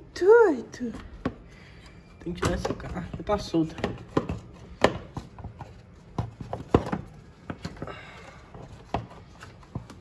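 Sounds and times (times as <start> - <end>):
plastic box knocking and clicking: 2.4 - 7.8.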